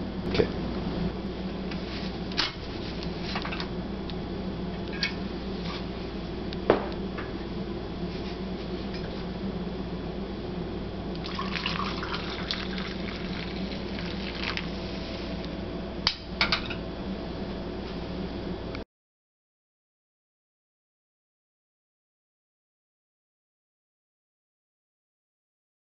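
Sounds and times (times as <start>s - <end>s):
coffee pouring into glass cup: 11.2s - 14.9s.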